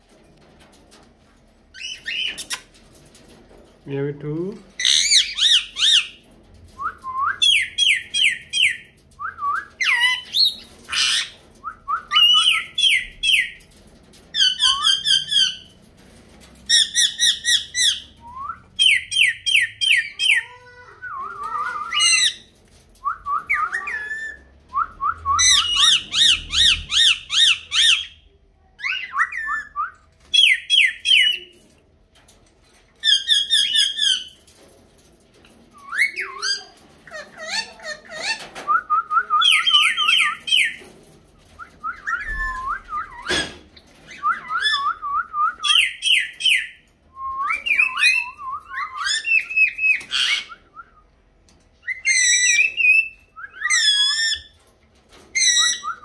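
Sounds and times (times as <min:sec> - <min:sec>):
parakeets squawking: 0:04.8 - 0:06.2, 0:23.5 - 0:24.5, 0:25.4 - 0:28.2.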